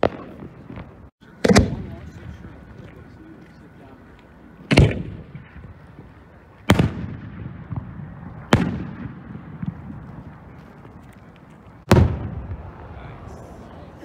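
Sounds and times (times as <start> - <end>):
firework bangs echoing: 0.0 - 2.6, 4.6 - 10.6, 11.8 - 13.3.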